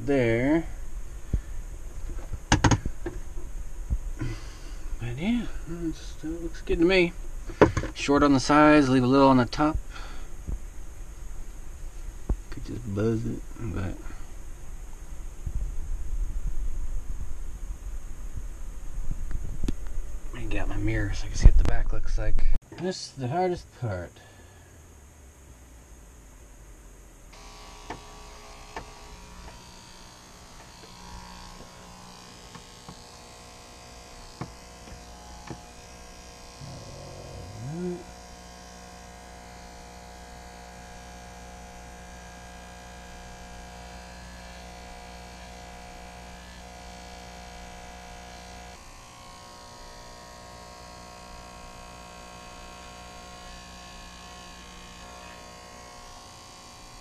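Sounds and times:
electric hair clippers buzzing: 27.3 - 57.0.

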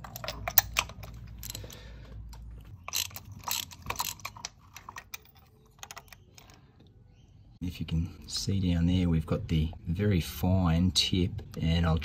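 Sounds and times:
ratchet clicking: 2.8 - 6.2.

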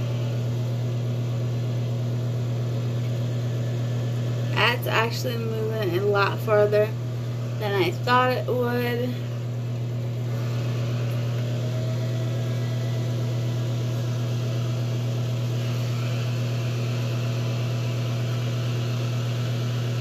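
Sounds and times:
handheld fan humming: 0.0 - 20.0.

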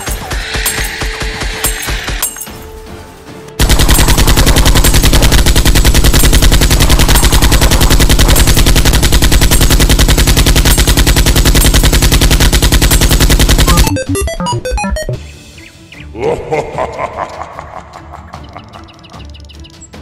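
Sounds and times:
machine-gun fire: 3.6 - 13.9.

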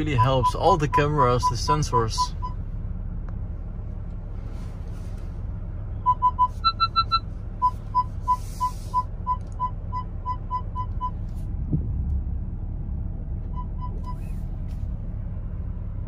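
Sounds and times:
parking sensor beeping: 0.0 - 2.7, 6.0 - 11.3, 13.4 - 14.4
low cabin rumble: 0.0 - 16.0.

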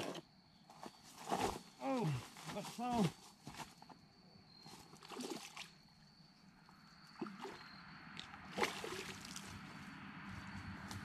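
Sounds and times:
fish splashing in shallow water: 4.8 - 5.8, 7.1 - 9.6.

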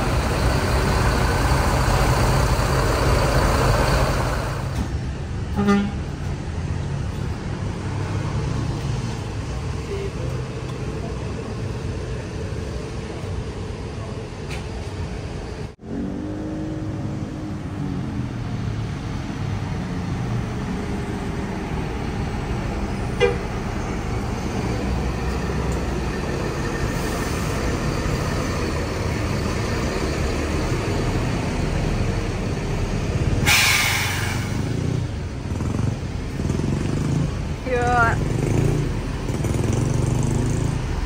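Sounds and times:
diesel bus engine running: 0.0 - 8.0, 8.8 - 15.9, 17.2 - 41.0
air hiss burst: 33.4 - 34.6.

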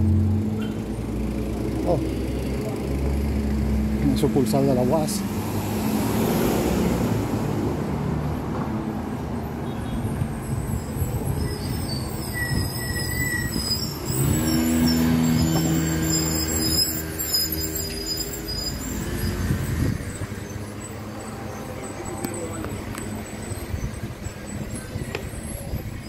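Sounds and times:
street traffic noise: 0.0 - 26.0.

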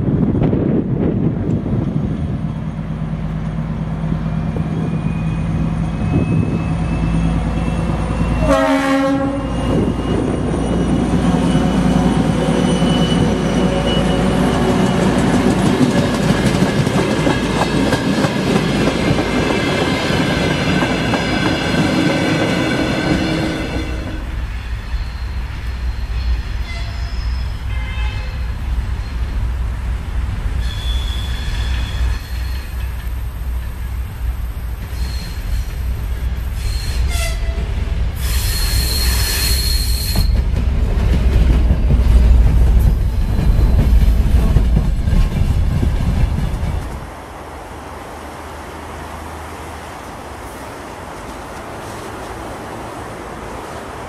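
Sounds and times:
diesel locomotive engine: 0.0 - 54.0
distant diesel locomotive: 0.0 - 54.0
train horn blast: 8.2 - 9.9, 23.1 - 24.4, 26.6 - 28.5, 36.6 - 37.7
train wheel clatter: 9.4 - 23.7, 38.4 - 47.1.

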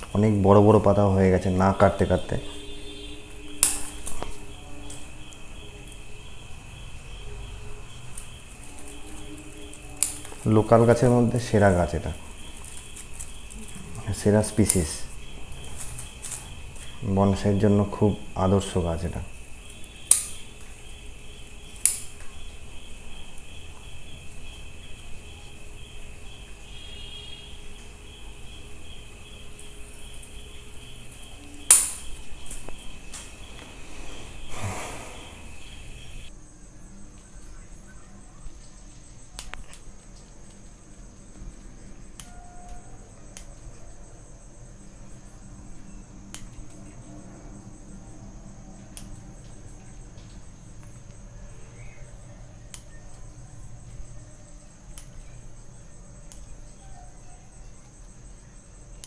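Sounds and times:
leafy rustle: 0.0 - 36.3
high insect chirring: 0.0 - 59.0
scissors snipping twigs: 3.5 - 5.0, 8.2 - 11.1, 19.6 - 20.4, 21.8 - 22.3, 31.6 - 33.3.

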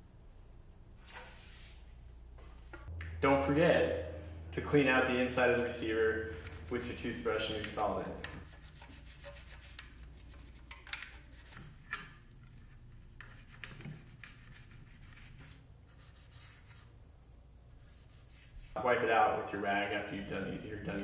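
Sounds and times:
toothbrush scrubbing metal: 6.2 - 16.9
brush clicking against metal: 7.4 - 12.2.

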